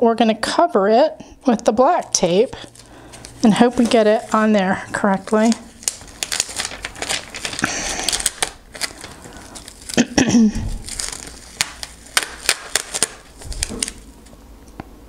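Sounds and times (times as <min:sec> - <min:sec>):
paper backing rustling: 0:01.8 - 0:14.4
tape crackling and clicking: 0:01.9 - 0:14.9.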